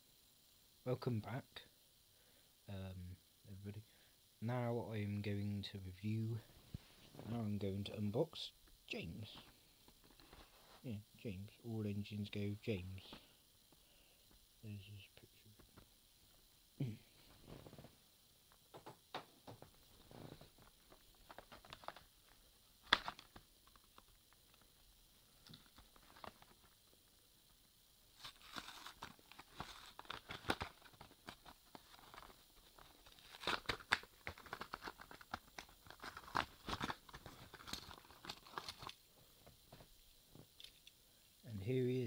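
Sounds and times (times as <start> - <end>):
plastic packaging crinkling and tearing: 20.1 - 24.6, 28.2 - 39.0.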